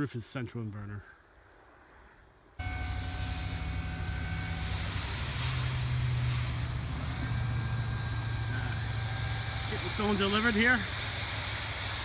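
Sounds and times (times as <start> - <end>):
dump truck engine running: 2.6 - 12.0.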